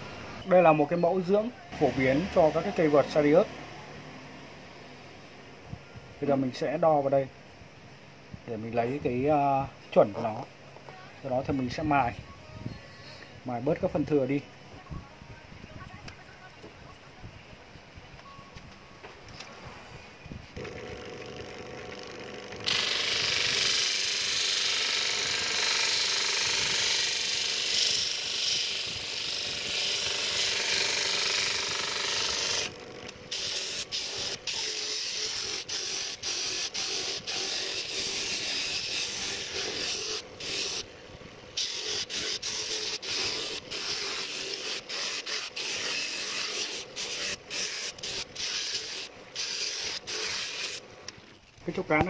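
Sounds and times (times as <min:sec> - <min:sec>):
disc sander grinding wood: 0:01.8 - 0:03.6, 0:20.6 - 0:41.0, 0:41.6 - 0:52.0
motor hum: 0:20.6 - 0:52.0.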